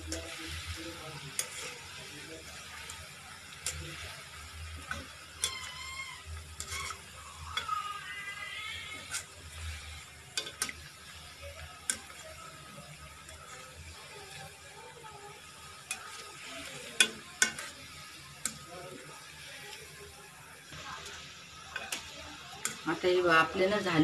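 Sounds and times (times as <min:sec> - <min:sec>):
fritters sizzling in hot oil: 0:00.0 - 0:24.0.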